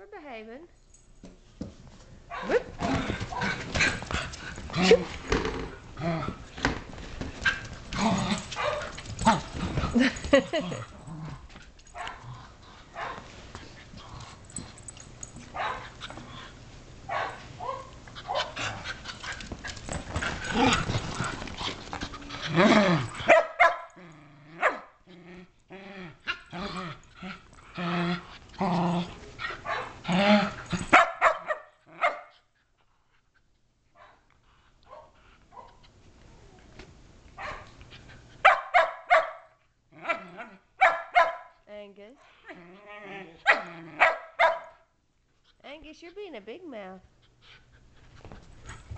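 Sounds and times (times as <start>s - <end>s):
dogs growling: 2.7s - 6.8s, 7.5s - 13.0s, 13.8s - 16.6s, 18.3s - 23.3s, 23.9s - 31.0s, 42.3s - 44.2s
dogs scuffling: 6.4s - 23.4s
dogs yipping and barking: 8.5s - 9.5s, 15.2s - 16.0s, 17.1s - 18.6s, 22.1s - 24.0s, 29.5s - 30.0s, 30.6s - 32.3s, 38.4s - 39.4s, 40.0s - 41.5s, 43.4s - 44.8s.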